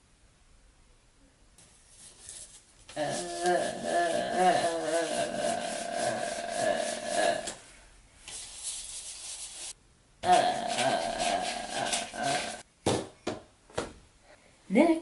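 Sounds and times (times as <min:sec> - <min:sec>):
paintbrush scrubbing on paper: 0:01.6 - 0:07.6, 0:08.2 - 0:09.8, 0:10.5 - 0:12.6.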